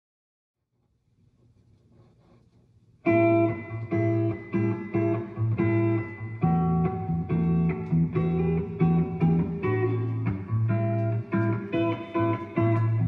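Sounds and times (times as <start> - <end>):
instrumental guitar chords: 3.1 - 13.0
steady bass: 3.1 - 13.0.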